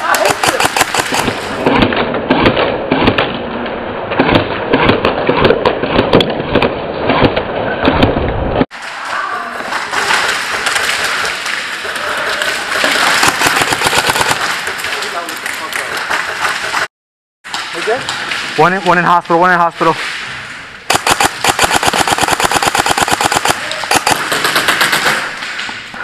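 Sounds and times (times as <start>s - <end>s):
airsoft gunfire clicks: 0.0s - 1.4s, 13.2s - 14.6s, 20.9s - 25.3s.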